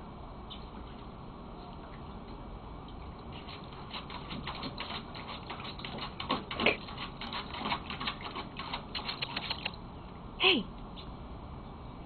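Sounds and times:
water splashing: 2.8 - 9.8
dog paws scraping plastic pool: 2.9 - 9.8.

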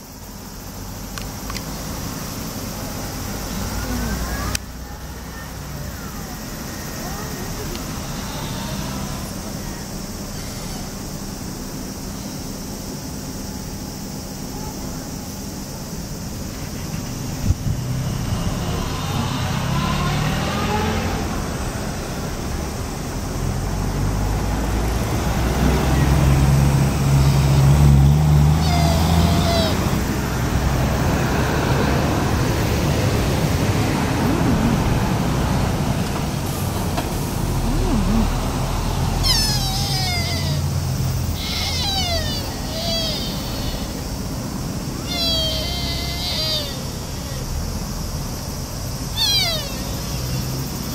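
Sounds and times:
street traffic: 0.0 - 50.9
deer calling: 28.5 - 30.6, 37.6 - 47.6, 49.0 - 50.9.

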